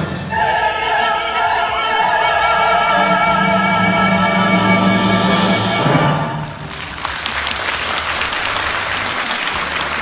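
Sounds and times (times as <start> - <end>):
operatic voice singing with vibrato: 0.0 - 6.4
opera orchestra: 0.0 - 10.0.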